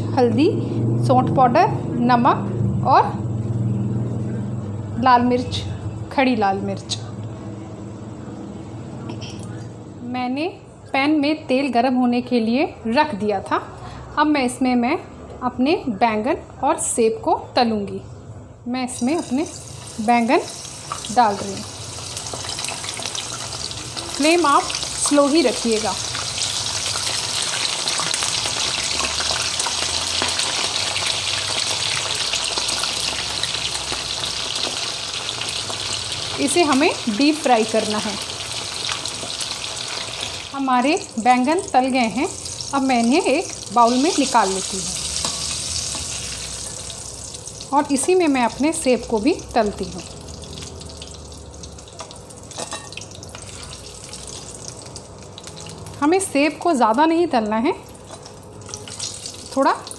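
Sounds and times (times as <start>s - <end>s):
vegetables sizzling in oil: 18.8s - 59.9s.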